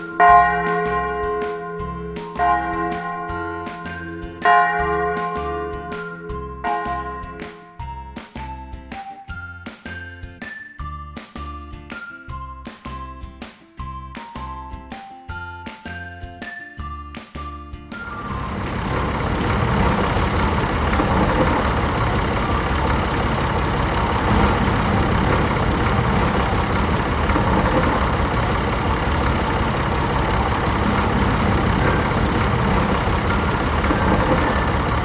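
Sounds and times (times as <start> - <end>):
vehicle engine idling: 18.0 - 35.0.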